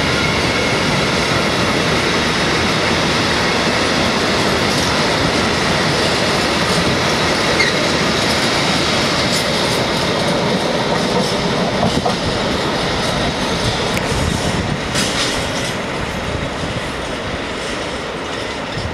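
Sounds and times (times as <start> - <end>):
freight train wheels clicking on rails: 0.0 - 18.9.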